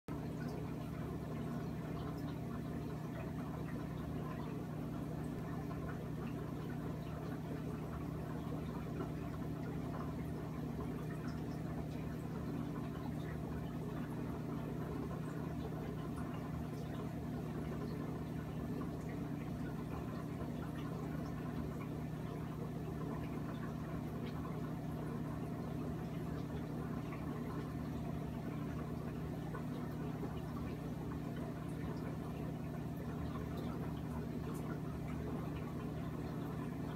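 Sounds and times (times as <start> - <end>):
aquarium equipment hum: 0.1 - 36.9
water trickling and bubbling: 0.1 - 36.9.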